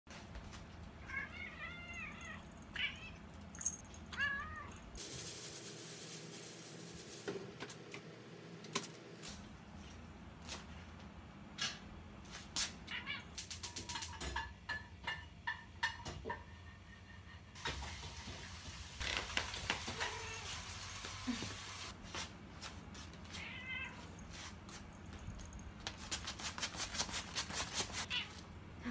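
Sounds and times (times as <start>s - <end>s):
steady hiss: 5.0s - 7.3s
cat meowing: 23.4s - 24.2s.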